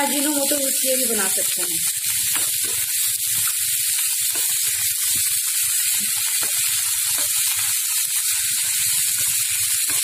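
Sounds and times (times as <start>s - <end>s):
vegetables sizzling in oil: 0.0s - 10.0s
spatula scraping and knocking pan: 6.0s - 7.5s.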